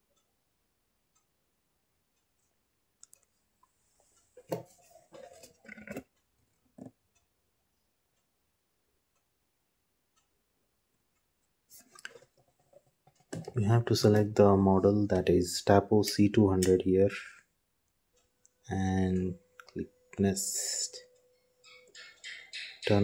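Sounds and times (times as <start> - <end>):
faint clicks and knocks: 10.1 - 14.4.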